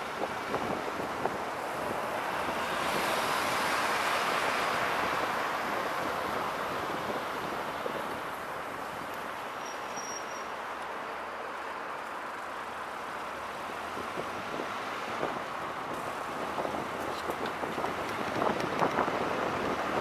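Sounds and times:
wind rushing over microphone: 0.0s - 9.5s, 13.5s - 20.0s
car road and tyre noise: 0.0s - 20.0s.

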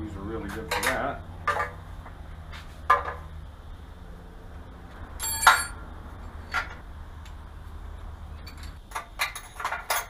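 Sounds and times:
metal parts clinking: 5.2s - 5.8s, 8.4s - 10.0s.

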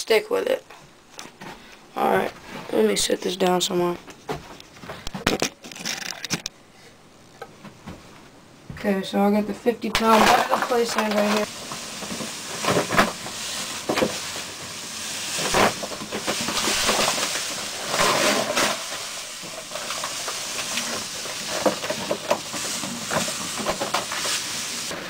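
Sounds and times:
sand pouring: 10.1s - 25.0s.

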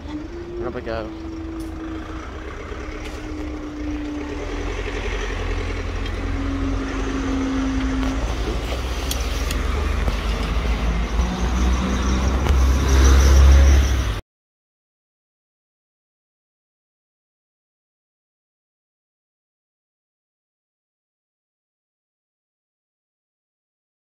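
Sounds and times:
barrier motor hum: 0.0s - 14.2s
vehicle engines rumbling: 0.0s - 14.2s.

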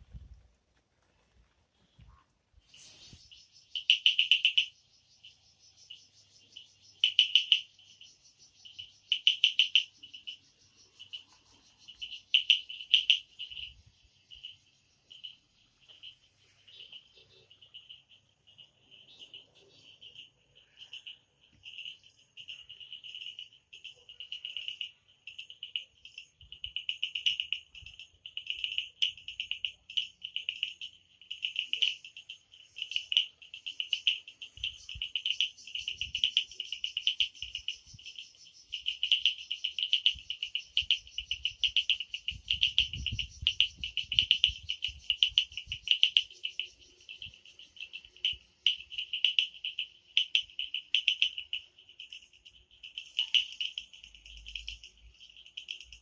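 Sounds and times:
frogs and insects trilling: 2.7s - 56.0s.

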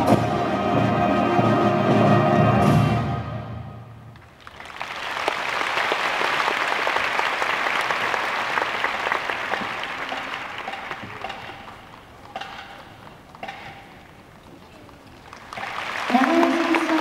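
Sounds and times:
large audience applauding: 4.1s - 13.4s, 14.0s - 17.0s.

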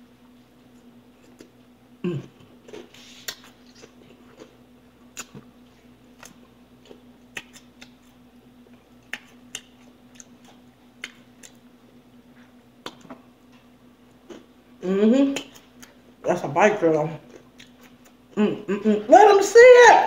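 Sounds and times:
faint steady hum: 0.0s - 20.0s
people chewing crunchy food: 0.6s - 14.5s, 17.2s - 18.4s.

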